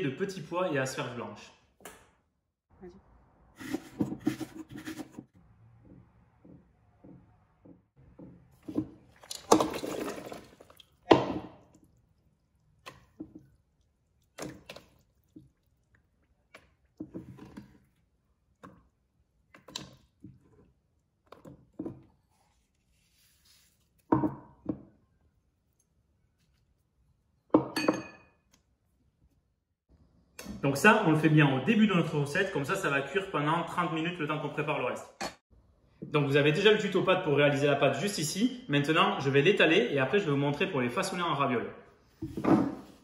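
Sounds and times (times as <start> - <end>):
vegetables dropping into water: 8.6 - 11.9
water splashing into pot: 8.7 - 17.8.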